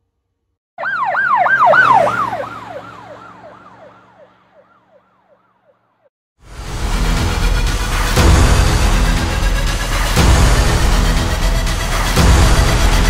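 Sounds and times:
siren yelping: 0:00.8 - 0:05.8.

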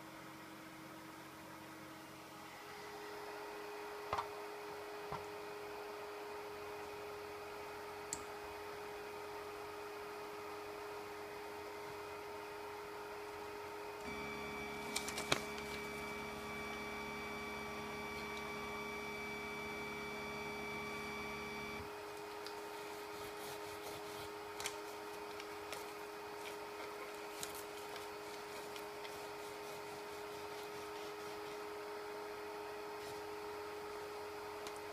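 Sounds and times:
steady hum: 0:00.8 - 0:34.9
stepper motors whining: 0:14.0 - 0:21.9
paper rustling and scraping: 0:14.3 - 0:16.5, 0:22.2 - 0:31.8.

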